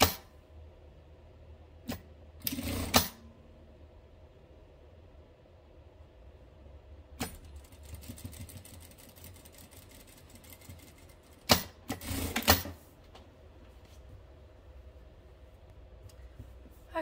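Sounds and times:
sewing machine clacks: 0:01.9 - 0:03.2, 0:07.2 - 0:12.8
sewing machine stitching: 0:01.9 - 0:03.2, 0:07.2 - 0:12.8.

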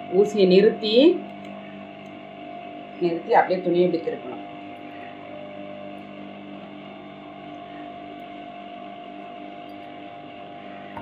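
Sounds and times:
electric motor hum: 0:00.0 - 0:11.0.

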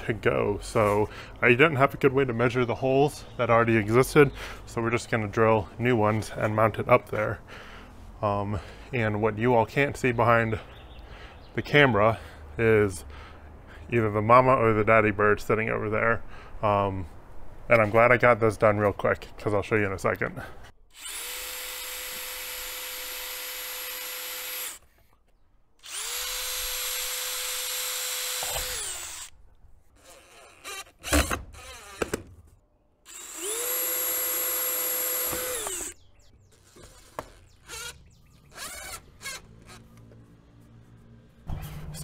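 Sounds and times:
power drill whining: 0:20.9 - 0:24.9, 0:25.8 - 0:29.3, 0:30.0 - 0:32.2, 0:33.1 - 0:40.2.

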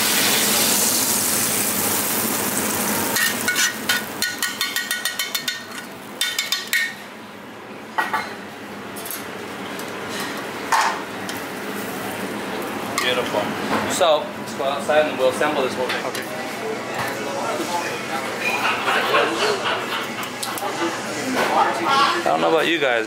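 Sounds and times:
steady kitchen hiss: 0:00.0 - 0:23.0
metal tongs clinking on pan: 0:03.2 - 0:07.0.

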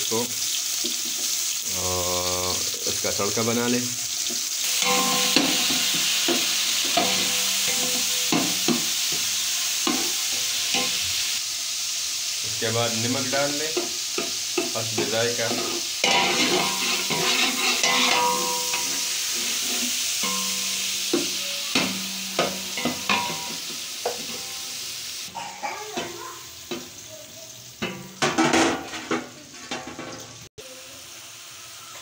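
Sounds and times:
vegetables sizzling in oil: 0:00.0 - 0:32.0
steel spoon scraping pot: 0:04.6 - 0:08.9, 0:15.5 - 0:21.0
spoon clinking against pot: 0:04.7 - 0:08.9, 0:20.2 - 0:24.4.

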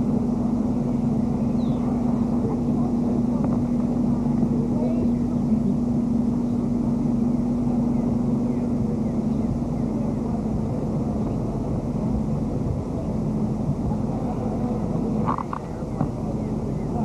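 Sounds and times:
low rumbling noise: 0:00.0 - 0:17.0
steady low drone: 0:00.0 - 0:17.0.

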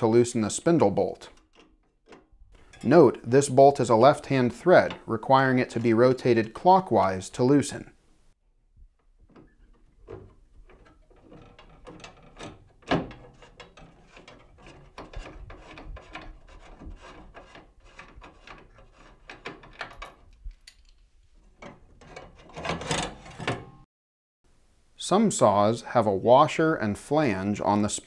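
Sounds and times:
wrench clicking and scraping metal: 0:10.7 - 0:21.0.

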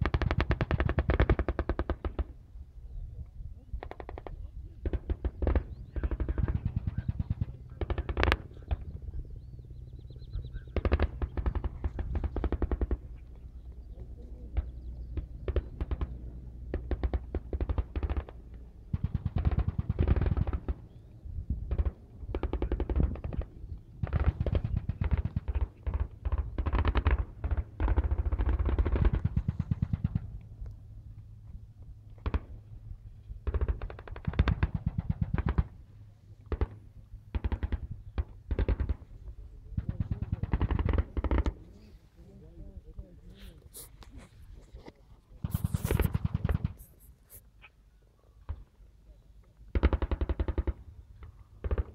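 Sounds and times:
automatic gunfire bursts: 0:10.6 - 0:13.2, 0:16.7 - 0:20.9, 0:21.7 - 0:30.3, 0:33.4 - 0:35.8, 0:36.5 - 0:39.1, 0:39.8 - 0:41.6, 0:45.4 - 0:46.8, 0:49.7 - 0:50.8.

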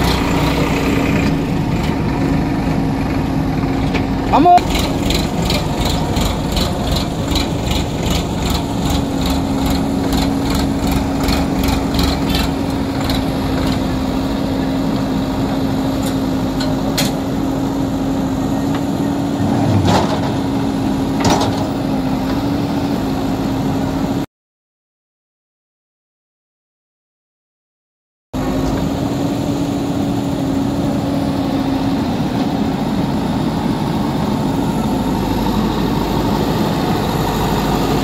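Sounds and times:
diesel engines running: 0:00.0 - 0:24.2, 0:28.4 - 0:38.0.

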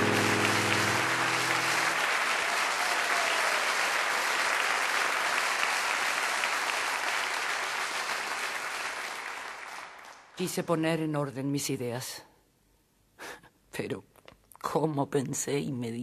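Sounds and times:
audience applauding: 0:00.0 - 0:10.4.

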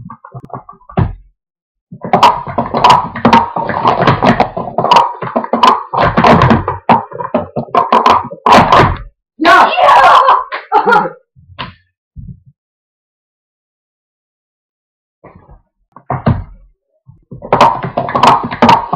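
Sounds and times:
plastic cups clattering: 0:02.0 - 0:09.0, 0:17.4 - 0:18.9.

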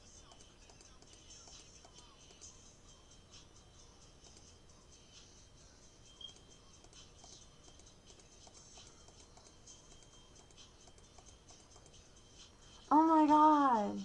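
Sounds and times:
computer mouse clicks: 0:00.2 - 0:02.1, 0:04.2 - 0:04.5, 0:06.2 - 0:12.0.

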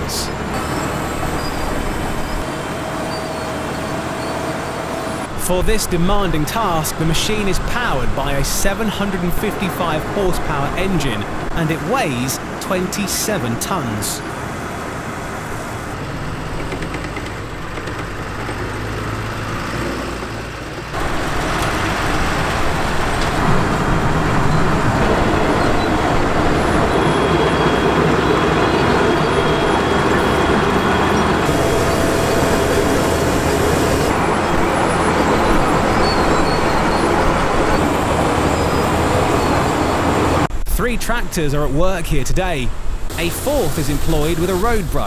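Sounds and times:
tractor engine: 0:00.0 - 0:41.2, 0:42.4 - 0:45.0
milling machine engine: 0:00.2 - 0:05.5, 0:14.2 - 0:40.5.

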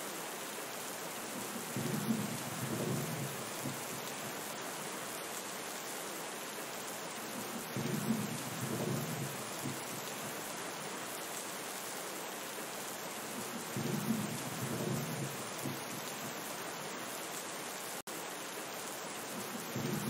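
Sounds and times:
steady rain falling: 0:00.0 - 0:20.0
low rolls of thunder: 0:01.4 - 0:04.0, 0:07.7 - 0:10.0, 0:13.4 - 0:16.1, 0:19.4 - 0:20.0.

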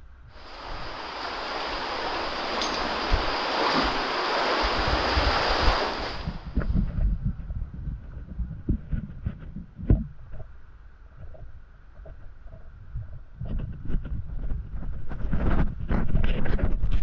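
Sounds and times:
water roaring: 0:00.0 - 0:13.6.

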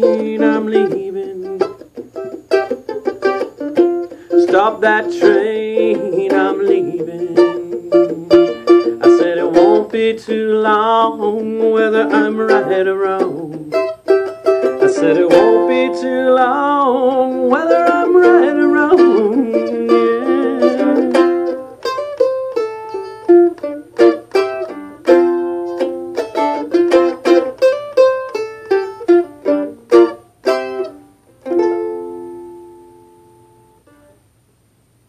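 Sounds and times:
person singing: 0:00.0 - 0:01.9, 0:03.8 - 0:21.9
mandolin playing: 0:00.0 - 0:34.3.

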